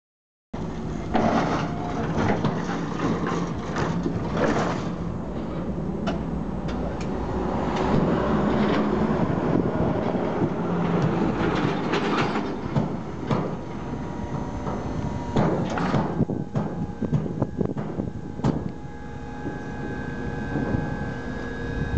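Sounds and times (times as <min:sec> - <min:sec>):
forklift motor hum: 0:00.6 - 0:21.9
forklift mast clanks and rattles: 0:00.8 - 0:07.0, 0:10.0 - 0:18.7.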